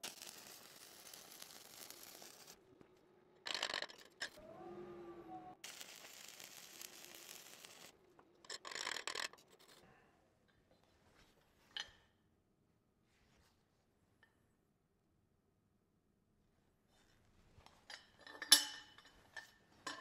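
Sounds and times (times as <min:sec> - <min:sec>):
welding arc crackling and hissing: 0:00.0 - 0:02.6, 0:05.6 - 0:08.0
brief wavering tone: 0:04.4 - 0:05.6.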